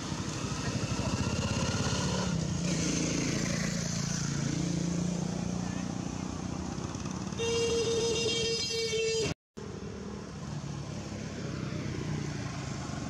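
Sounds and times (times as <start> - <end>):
passing road traffic: 0.0 - 13.0
vehicle horn held note: 7.4 - 9.3.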